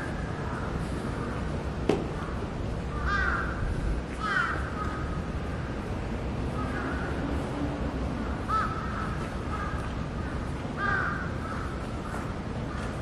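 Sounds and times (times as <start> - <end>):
birds calling: 0.0 - 5.9, 8.2 - 13.0
steady background hiss: 0.0 - 13.0.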